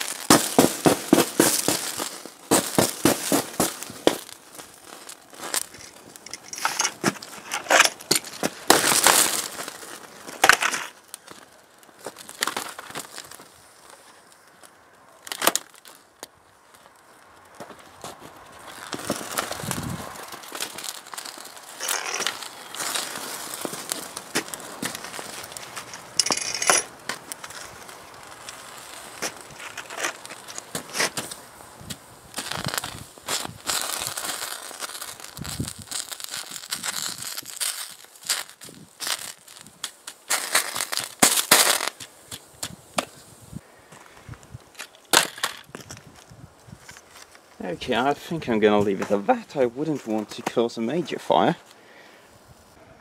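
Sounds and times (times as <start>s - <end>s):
sharp pops: 0.0s - 16.4s, 17.5s - 43.2s
fire crackling and hissing: 0.0s - 53.0s.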